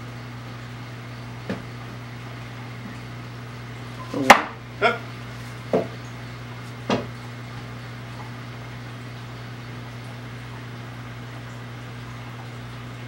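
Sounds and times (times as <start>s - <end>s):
steady low hum: 0.0s - 13.0s
wooden boards knocking on table: 5.7s - 6.0s, 6.9s - 7.1s.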